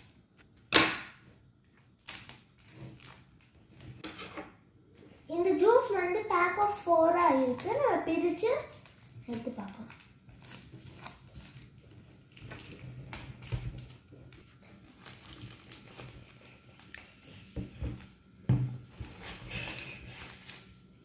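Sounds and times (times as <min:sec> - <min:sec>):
plastic wrap crinkling: 0:00.0 - 0:04.0, 0:04.9 - 0:21.0
cartons knocking on table: 0:17.6 - 0:18.9.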